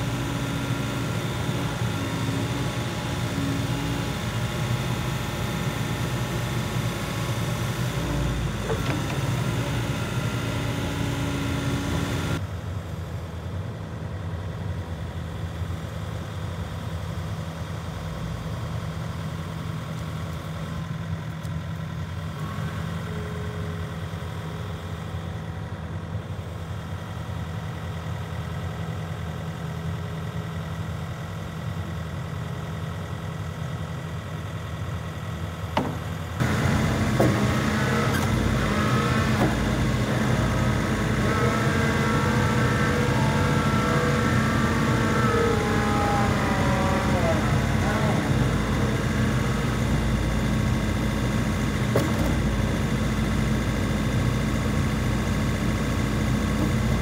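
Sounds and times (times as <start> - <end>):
hydraulic whine: 0.0 - 12.4, 35.6 - 57.0
excavator diesel engine idling: 0.0 - 57.0.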